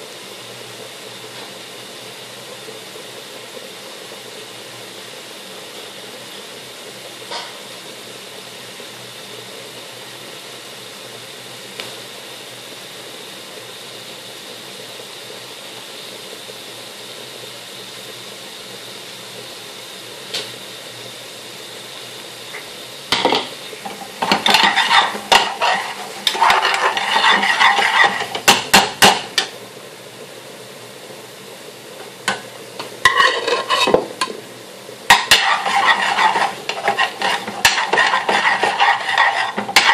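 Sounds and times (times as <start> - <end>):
curry hissing in a pan: 0.0 - 39.9
metal spoon scraping a pan: 23.1 - 29.3, 33.0 - 34.2, 35.1 - 39.9.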